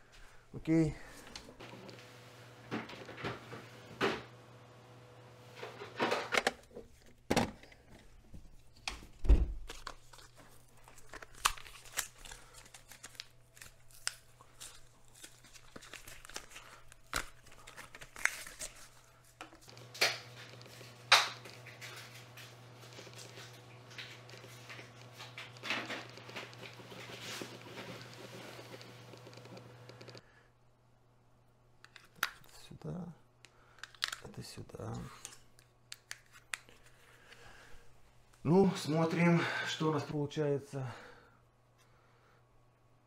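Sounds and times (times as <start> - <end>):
packaging tearing and crinkling: 9.6 - 19.1.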